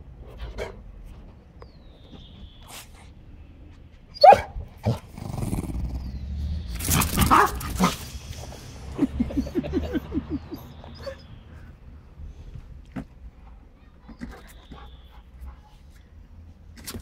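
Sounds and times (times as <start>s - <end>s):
dog barking and snarling: 6.8s - 8.1s.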